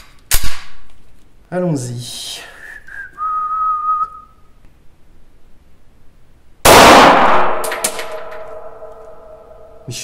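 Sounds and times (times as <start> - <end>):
pistol shot: 0.3 - 0.8, 6.6 - 9.3
whistled note: 2.6 - 4.5.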